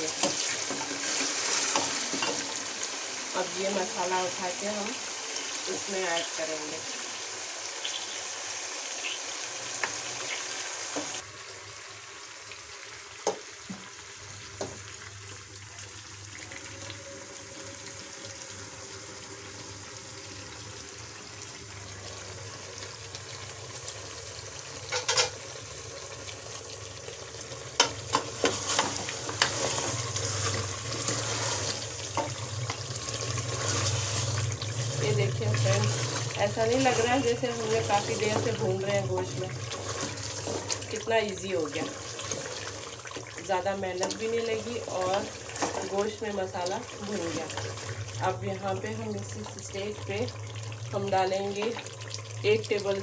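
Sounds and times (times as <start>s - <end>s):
meat sizzling in pot: 0.0s - 53.0s
wooden spoon scraping pot: 27.8s - 41.1s, 41.7s - 43.2s.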